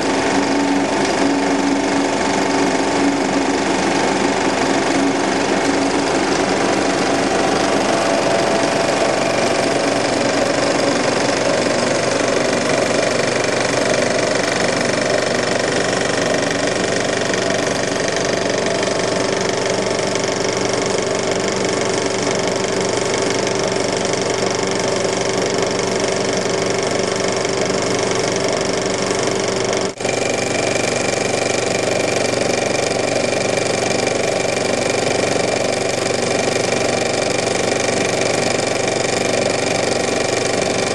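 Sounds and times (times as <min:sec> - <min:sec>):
film projector clattering and humming: 0:00.0 - 0:40.9.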